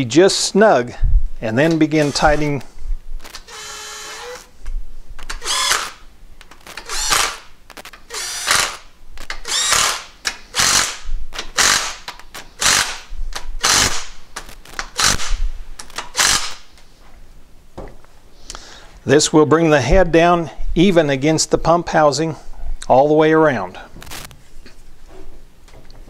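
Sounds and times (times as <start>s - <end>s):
cordless driver short bursts: 2.0s - 2.6s, 3.3s - 4.5s, 5.3s - 6.0s, 6.8s - 7.5s, 8.1s - 14.1s, 14.9s - 15.4s, 16.0s - 16.6s.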